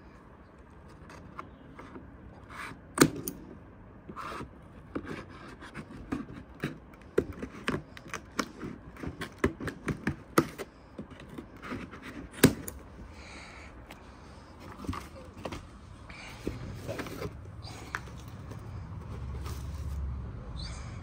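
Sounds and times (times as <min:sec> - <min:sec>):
cardboard box being handled: 0:14.6 - 0:20.1.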